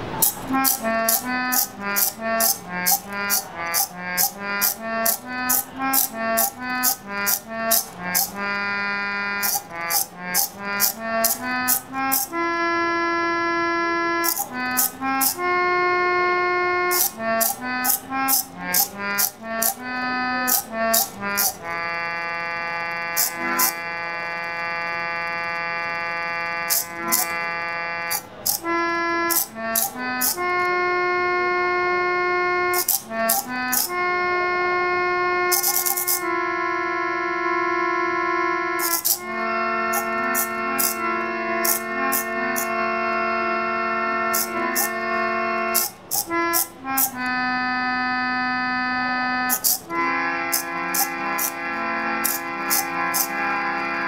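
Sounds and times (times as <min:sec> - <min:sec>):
mechanical key presser clicks: 0:00.0 - 0:12.4, 0:14.1 - 0:15.6, 0:16.8 - 0:30.8, 0:32.7 - 0:34.0, 0:35.5 - 0:36.3, 0:38.8 - 0:42.7, 0:44.3 - 0:47.4, 0:49.5 - 0:51.6, 0:52.2 - 0:53.5
reedy organ melody: 0:00.0 - 0:54.0.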